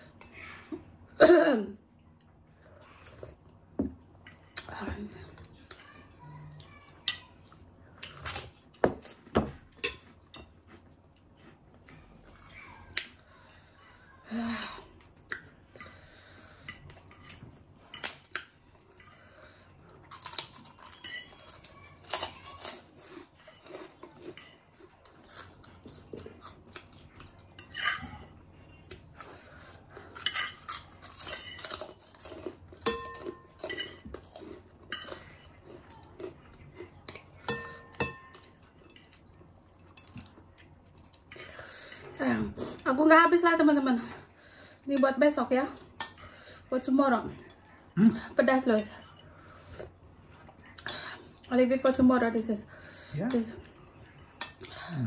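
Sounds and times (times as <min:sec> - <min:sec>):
people chewing: 0:01.8 - 0:42.9, 0:45.7 - 0:52.0, 0:52.7 - 0:55.0
cutlery clinking on plates: 0:08.8 - 0:10.6, 0:20.8 - 0:22.3, 0:27.6 - 0:28.3, 0:32.8 - 0:34.3, 0:37.0 - 0:39.2.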